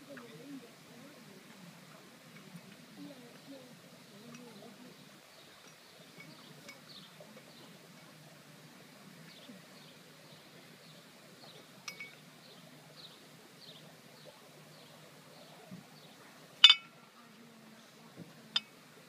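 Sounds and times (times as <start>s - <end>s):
sharp ringing clinks: 11.9s - 12.2s, 16.6s - 16.9s.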